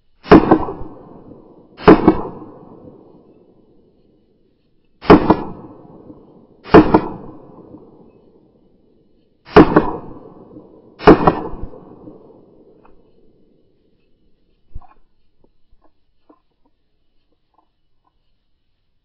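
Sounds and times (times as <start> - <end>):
handgun shots: 1.8 - 2.7, 5.0 - 5.7, 6.7 - 7.4, 9.5 - 10.3, 11.0 - 11.9.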